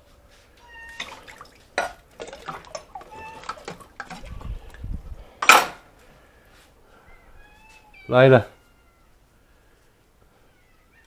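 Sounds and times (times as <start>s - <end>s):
metal bowls clinking: 1.0s - 4.8s.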